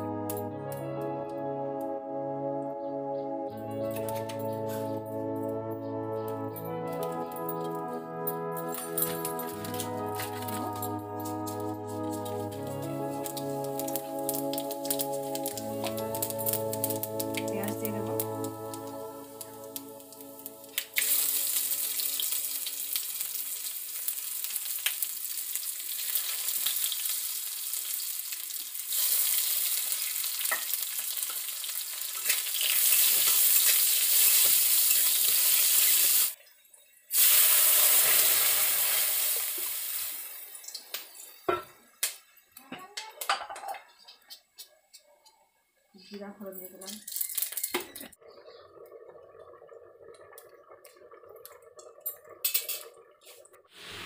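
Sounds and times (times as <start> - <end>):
food sizzling in hot oil: 12.5 - 36.4, 37.1 - 42.2, 53.7 - 54.0.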